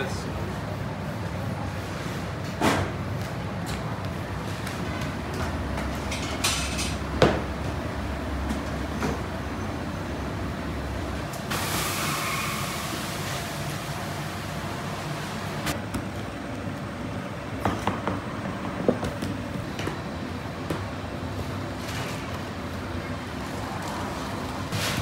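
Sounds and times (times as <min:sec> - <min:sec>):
burst of hiss: 0:11.5 - 0:13.3.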